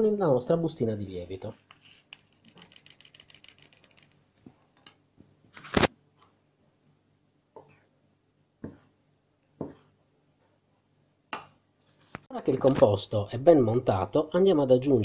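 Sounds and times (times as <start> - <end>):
powder shaken from sachet ticking: 2.1 - 4.2.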